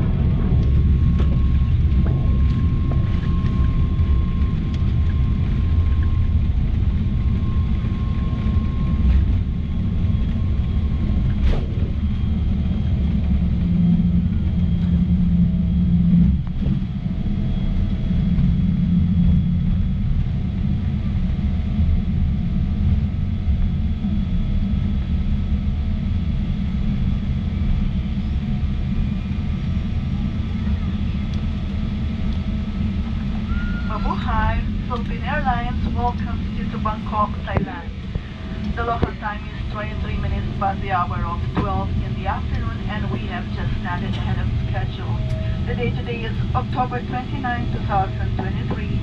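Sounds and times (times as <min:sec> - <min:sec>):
airliner cabin rumble: 0:00.0 - 0:49.0
short falling whistle: 0:33.5 - 0:34.0.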